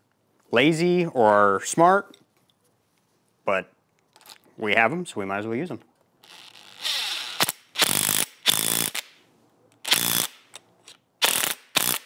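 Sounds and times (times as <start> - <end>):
cordless impact driver hammering: 11.2 - 12.0.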